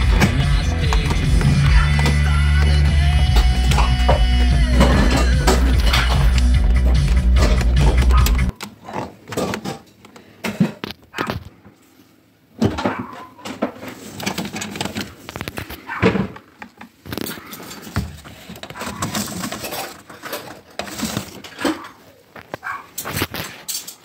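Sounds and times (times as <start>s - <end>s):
metal panels clattering: 3.2s - 8.5s
dog yipping: 12.9s - 13.4s, 22.6s - 22.9s.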